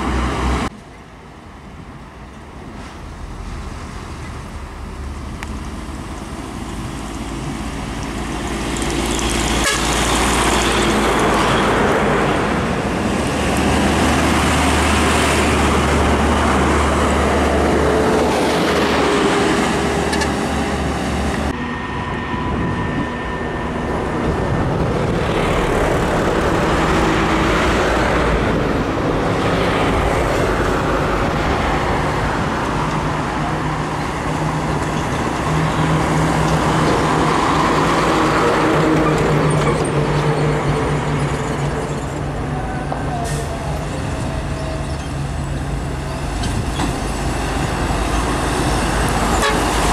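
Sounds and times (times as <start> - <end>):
heavy trucks passing: 0.0 - 49.9
truck horn toot: 9.6 - 10.2, 49.2 - 49.9.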